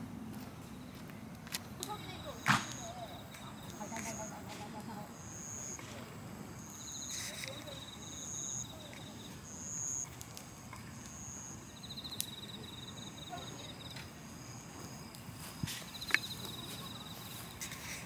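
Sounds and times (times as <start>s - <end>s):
insect pulsed trill: 1.9s - 17.6s
insect high steady note: 2.0s - 5.8s, 6.5s - 10.1s.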